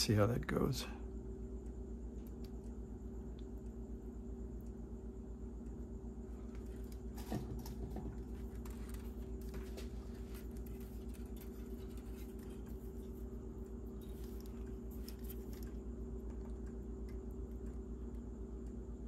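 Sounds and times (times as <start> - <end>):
low electrical hum: 0.0 - 19.0
small clicks and scrapes: 6.5 - 16.8.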